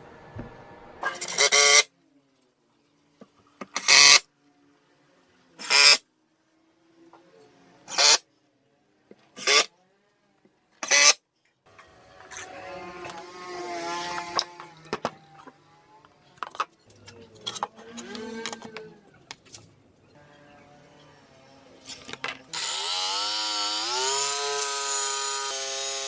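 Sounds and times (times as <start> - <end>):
drill driving screws into wood: 1.1 - 1.9, 3.7 - 4.2, 5.6 - 6.0, 7.9 - 8.2, 9.4 - 9.7, 10.8 - 11.2, 22.5 - 26.0.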